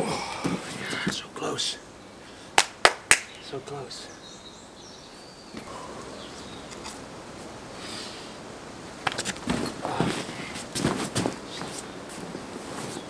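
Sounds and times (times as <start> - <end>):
faint bird chirps: 3.3 - 6.9.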